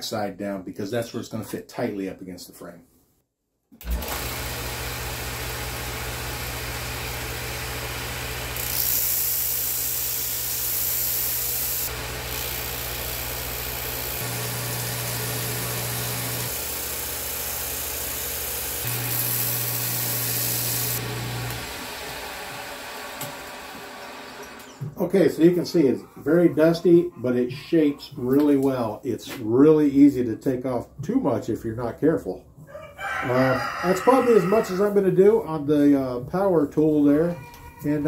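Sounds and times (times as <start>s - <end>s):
sander motor humming: 3.8s - 24.9s.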